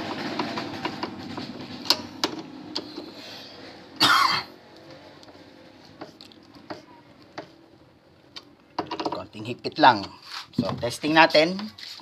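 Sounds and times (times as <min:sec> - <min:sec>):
person coughing: 0:04.0 - 0:04.6.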